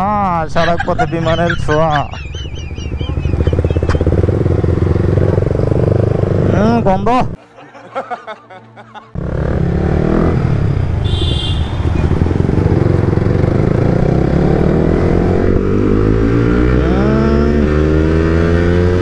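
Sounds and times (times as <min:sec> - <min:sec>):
motorcycle engine accelerating: 0:00.9 - 0:07.0, 0:09.2 - 0:19.0
second engine revving: 0:02.9 - 0:06.8, 0:09.2 - 0:19.0.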